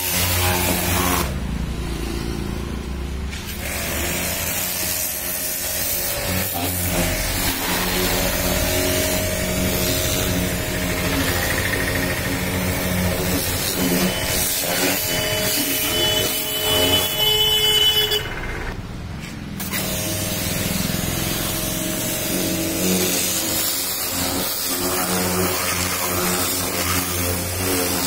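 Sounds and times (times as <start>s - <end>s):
pressure washer motor drone: 0.0s - 28.0s
water jet hissing on metal: 19.6s - 28.0s.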